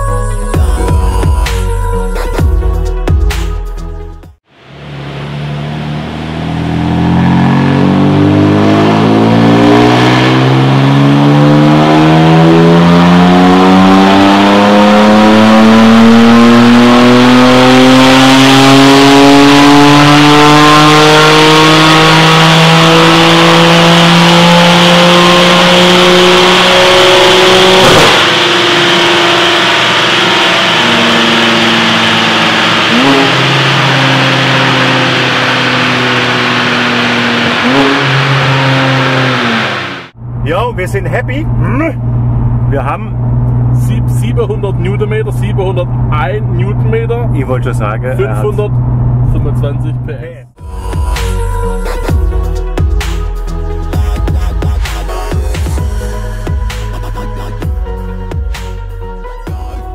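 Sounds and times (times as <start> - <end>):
car engine at full throttle: 4.4 - 59.1
sharp engine pop: 27.8 - 29.0.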